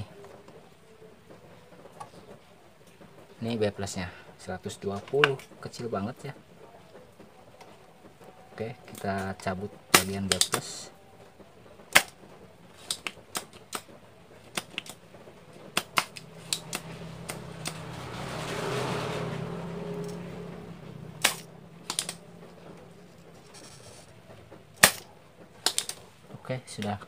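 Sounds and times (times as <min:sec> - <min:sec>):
low hum with hiss: 0:00.0 - 0:27.0
desoldering pump snap: 0:24.8 - 0:25.0.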